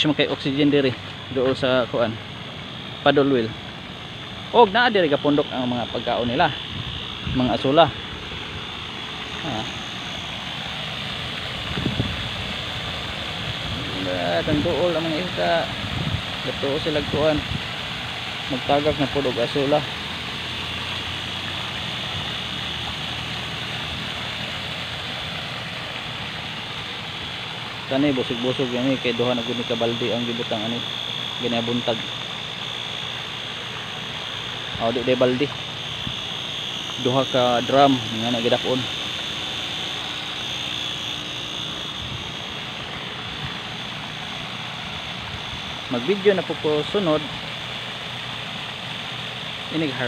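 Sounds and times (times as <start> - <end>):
paddlewheel churning and splashing water: 0.0 - 6.5, 7.4 - 50.0
aerator motor hum: 0.0 - 50.0.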